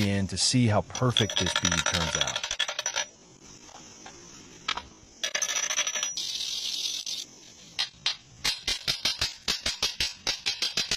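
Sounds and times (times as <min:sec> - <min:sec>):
metal scraping and clinking: 0:00.9 - 0:03.1.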